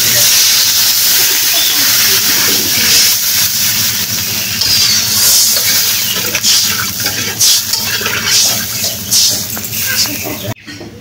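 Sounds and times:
hot curry hissing: 0.0s - 10.6s
metal spatula scraping a pan: 4.5s - 10.3s.

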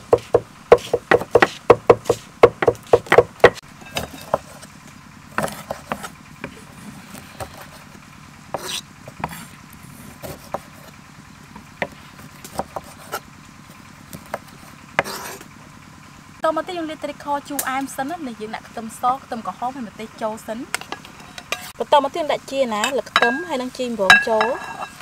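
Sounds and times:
knife chopping on wooden block: 0.0s - 4.7s, 5.4s - 6.6s, 8.5s - 10.8s, 11.8s - 13.2s, 14.1s - 15.4s
knife slicing lime on block: 0.1s - 4.7s, 5.4s - 6.6s, 8.5s - 10.9s, 14.1s - 15.4s.

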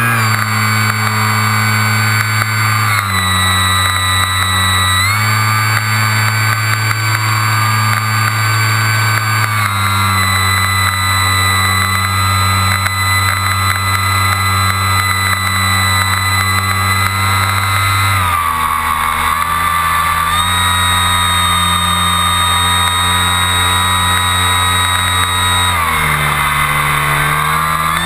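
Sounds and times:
model airplane motor drone: 0.0s - 28.0s.

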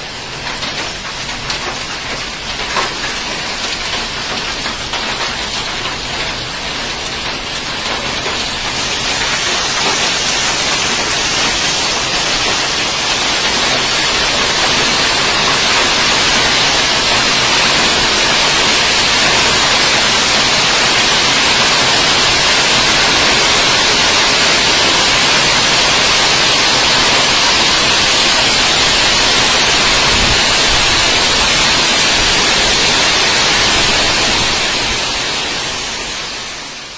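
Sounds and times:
heavy rain pouring: 0.0s - 36.9s.

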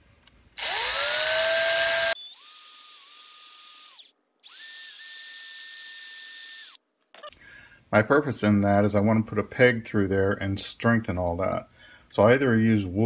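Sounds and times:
cordless drill whine: 0.6s - 6.8s.

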